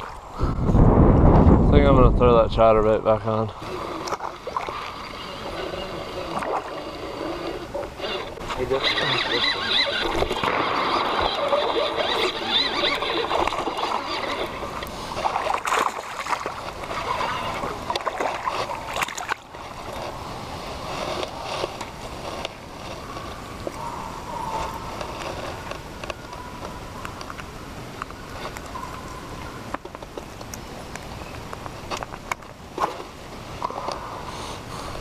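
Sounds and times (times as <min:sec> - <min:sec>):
fish splashing at water surface: 0:10.9 - 0:19.5.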